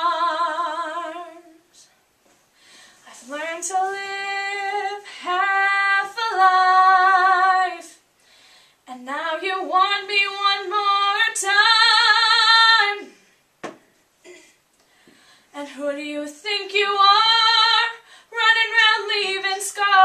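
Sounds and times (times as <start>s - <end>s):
girl singing unaccompanied: 3.1s - 8.1s, 8.9s - 13.1s, 15.5s - 20.0s.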